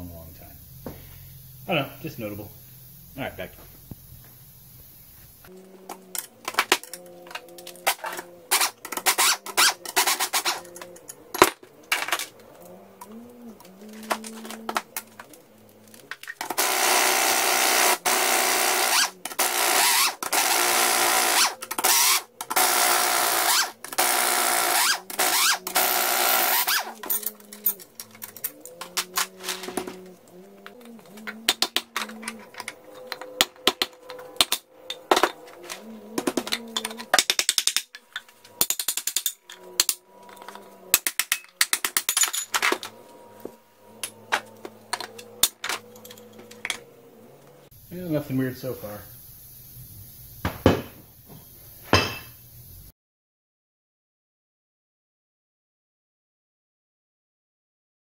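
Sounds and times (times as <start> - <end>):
tools clinking against metal: 5.9 - 15.4, 20.2 - 46.8, 51.9 - 52.4
pneumatic impact wrench bursts: 7.9 - 10.6, 16.4 - 27.8.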